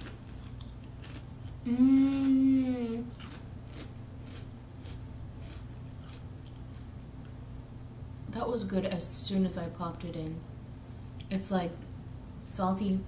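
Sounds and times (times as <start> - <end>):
potato chips crunching: 0.0 - 1.3, 3.1 - 7.0
woman humming: 1.6 - 3.2.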